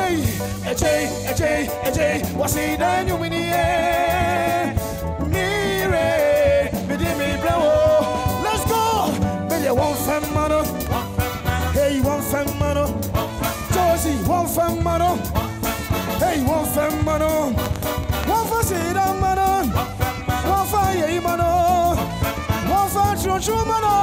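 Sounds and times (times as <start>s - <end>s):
live band playing gospel: 0.0s - 24.0s
trumpet line: 0.0s - 24.0s.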